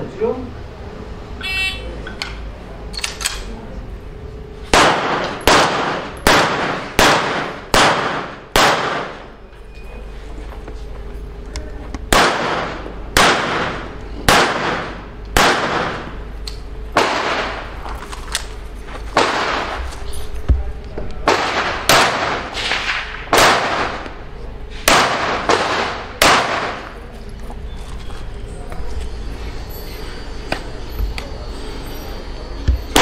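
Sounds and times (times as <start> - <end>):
pistol shots with echo: 4.7 - 9.4, 12.1 - 16.2, 16.9 - 17.8, 19.2 - 19.9, 21.2 - 24.2, 24.8 - 27.0, 32.7 - 33.0.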